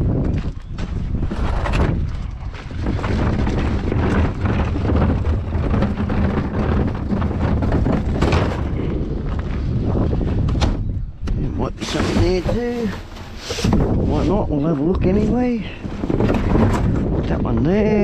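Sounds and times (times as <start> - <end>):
wind rumbling on microphone: 0.0 - 18.0
rummaging through rubbish bin: 1.1 - 9.0, 11.8 - 18.0.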